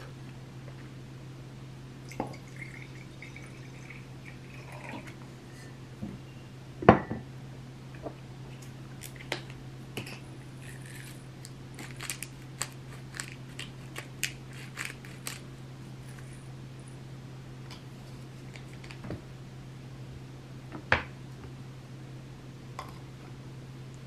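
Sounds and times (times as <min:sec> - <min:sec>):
pepper mill grinding: 0:10.0 - 0:15.5.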